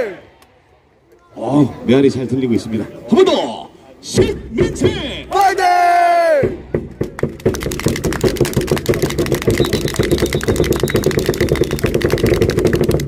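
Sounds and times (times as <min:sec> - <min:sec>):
crowd cheering and clapping: 0:07.0 - 0:13.0.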